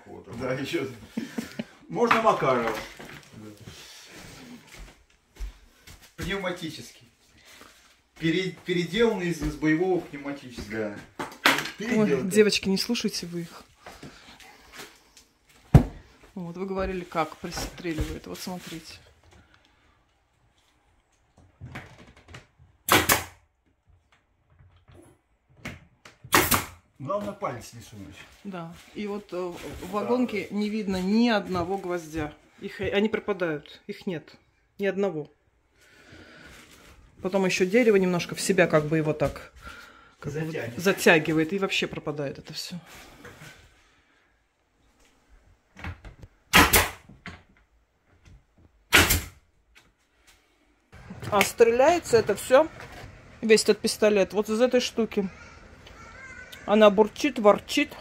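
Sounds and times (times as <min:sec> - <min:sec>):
nail gun firing: 0:22.9 - 0:23.4, 0:26.3 - 0:26.8, 0:46.5 - 0:47.0, 0:48.9 - 0:49.4.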